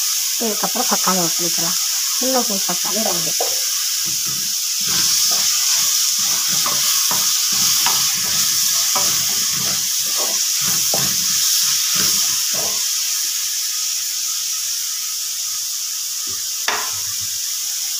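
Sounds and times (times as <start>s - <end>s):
vegetables sizzling in oil: 0.0s - 17.9s
spatula scraping metal pan: 2.9s - 12.9s.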